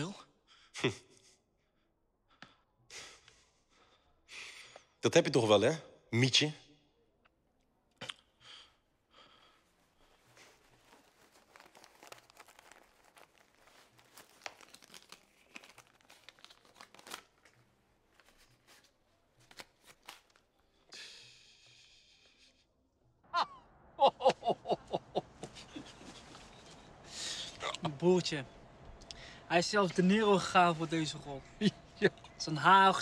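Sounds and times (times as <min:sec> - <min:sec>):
faint rustling: 0:09.4 - 0:19.7.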